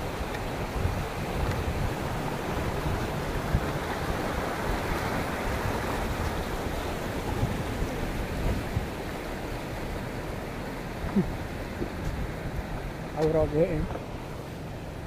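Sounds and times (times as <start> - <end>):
river rushing over stones: 0.0 - 15.0
wind buffeting microphone: 0.0 - 15.0.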